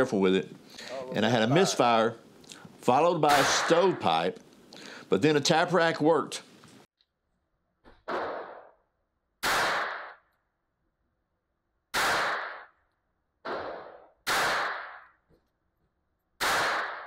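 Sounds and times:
pistol shots with echo: 0:03.3 - 0:04.0, 0:09.4 - 0:10.2, 0:11.9 - 0:12.7, 0:13.5 - 0:15.1, 0:16.4 - 0:17.0.

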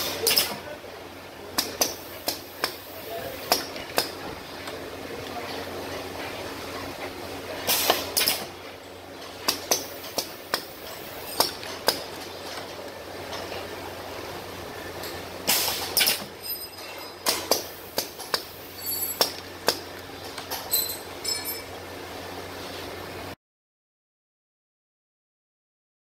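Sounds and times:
low machine hum: 0:00.0 - 0:23.4
short pneumatic hiss: 0:07.7 - 0:08.5, 0:15.5 - 0:16.3.

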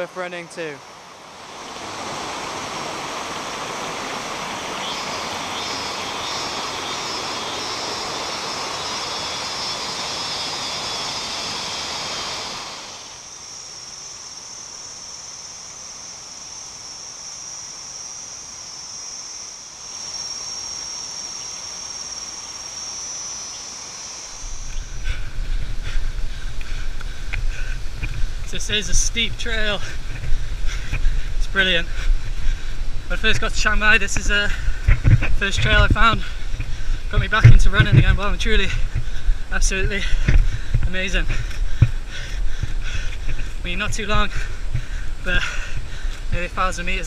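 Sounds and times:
waterfall rushing: 0:00.0 - 0:13.3
cicadas droning: 0:00.0 - 0:47.0
running footsteps on dirt trail: 0:24.4 - 0:47.0.

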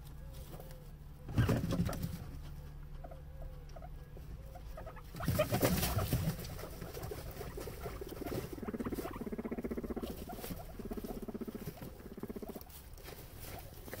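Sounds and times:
guinea pig pulsing rumble: 0:00.0 - 0:14.0
guinea pigs chewing hay: 0:00.0 - 0:14.0
hay rustling: 0:05.3 - 0:14.0.

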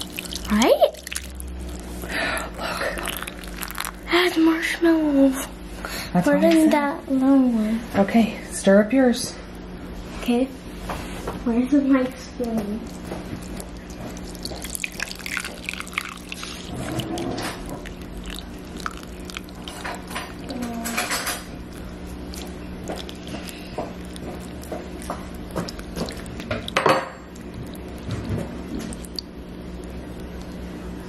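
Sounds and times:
milk pouring into mug: 0:00.0 - 0:04.1, 0:13.0 - 0:20.6
steady low hum: 0:00.0 - 0:31.0.

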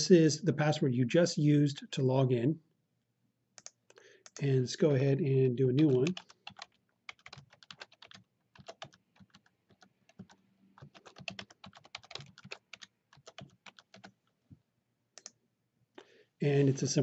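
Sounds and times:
faint computer keyboard typing: 0:03.6 - 0:04.5, 0:05.8 - 0:14.4, 0:15.2 - 0:15.4.

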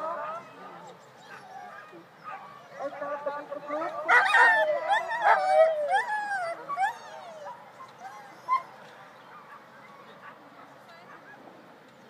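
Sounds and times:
dogs whining and yelping: 0:00.0 - 0:02.9, 0:04.1 - 0:08.8.

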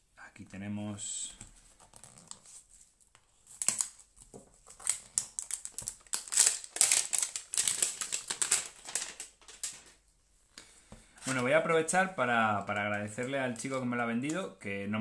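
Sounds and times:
plastic wrapper crinkling: 0:03.5 - 0:10.0.

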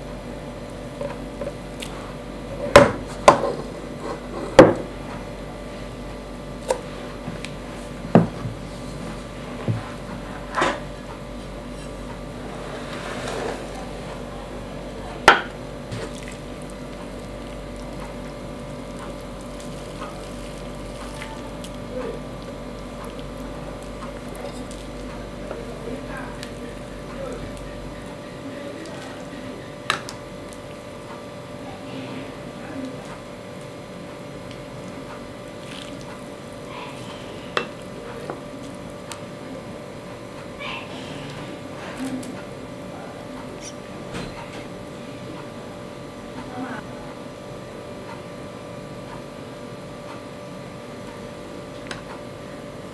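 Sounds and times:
faint hum: 0:00.0 - 0:52.9
wet squishing of noodles: 0:15.8 - 0:31.6, 0:32.8 - 0:39.4.

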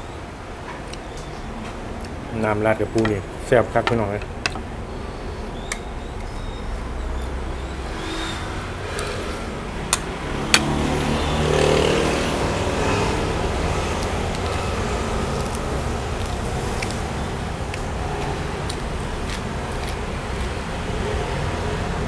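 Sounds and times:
vehicle engine passing: 0:06.6 - 0:22.0.

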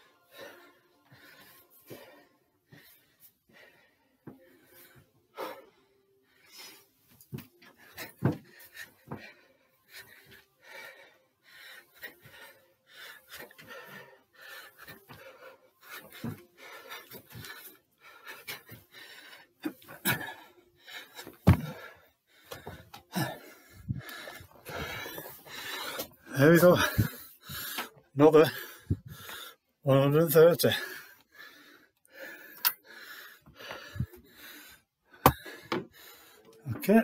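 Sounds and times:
man panting hard: 0:00.0 - 0:36.8
thuds of feet landing: 0:07.3 - 0:09.4, 0:21.2 - 0:25.4.

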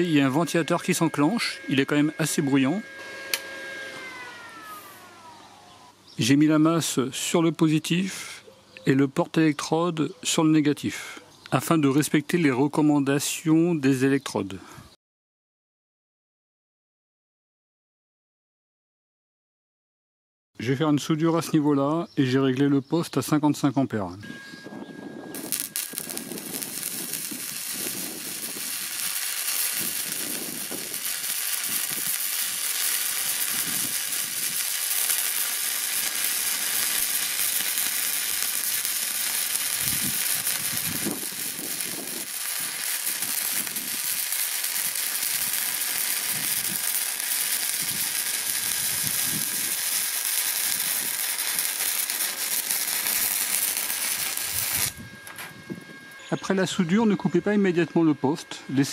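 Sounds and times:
welding arc crackling sizzle: 0:00.0 - 0:06.0, 0:24.7 - 0:55.8.

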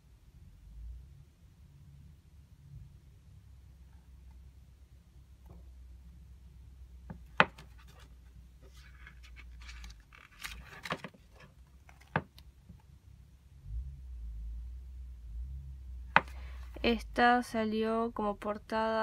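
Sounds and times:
paper pages rustling: 0:07.6 - 0:12.4.

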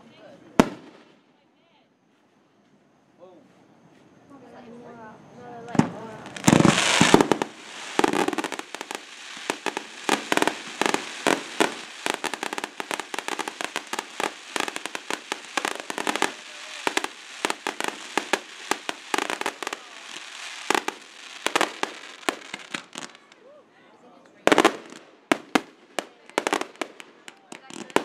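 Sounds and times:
fireworks bangs and pops: 0:00.6 - 0:01.2, 0:05.7 - 0:23.4, 0:24.4 - 0:28.0.

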